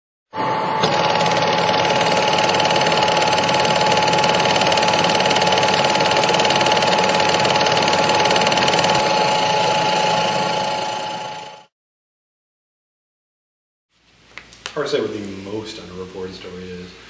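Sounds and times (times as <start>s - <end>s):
small machine clattering and humming: 0.8s - 11.7s.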